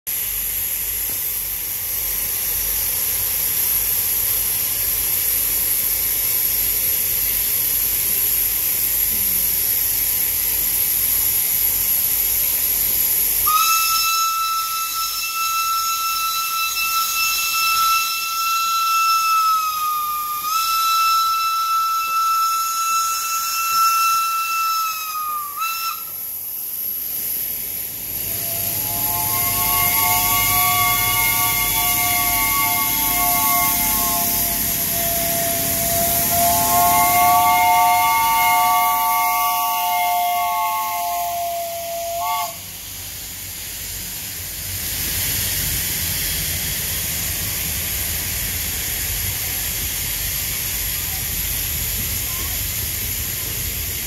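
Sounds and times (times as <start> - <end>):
steam locomotive hissing: 0.1 - 54.0
steam whistle blast: 13.4 - 26.4, 28.1 - 43.1.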